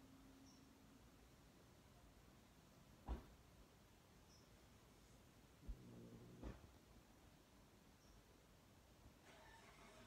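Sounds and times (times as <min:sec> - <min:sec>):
soft thump: 0:03.0 - 0:03.3.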